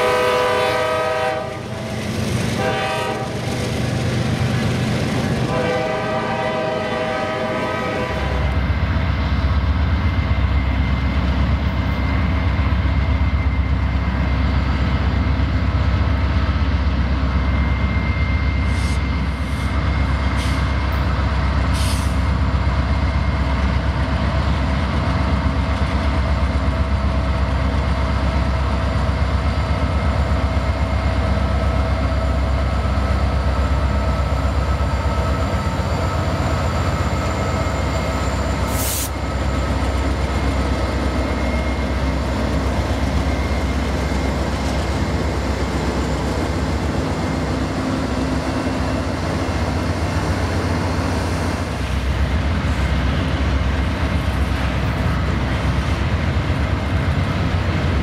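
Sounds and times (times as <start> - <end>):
train rumbling by: 0.0 - 58.0
brief hiss: 38.7 - 39.2.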